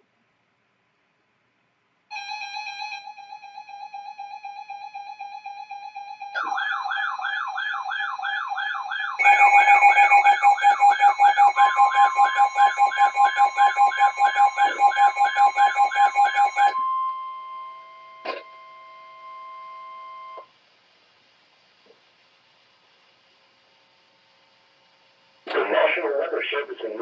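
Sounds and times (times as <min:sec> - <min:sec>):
warbling siren-like alarm: 0:02.4 - 0:20.4
steady high alert tone: 0:05.7 - 0:17.9
rapidly pulsing beep: 0:07.7 - 0:17.6
loud pulsing beep: 0:09.2 - 0:20.4.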